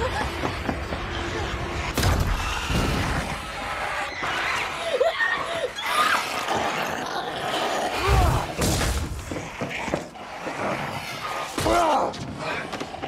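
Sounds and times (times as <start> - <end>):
shrieking cries: 3.4 - 6.5.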